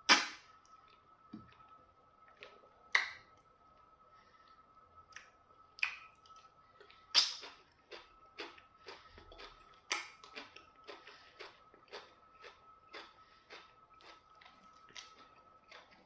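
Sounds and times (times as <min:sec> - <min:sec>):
wet mouth smacks and chewing: 0:07.1 - 0:16.0.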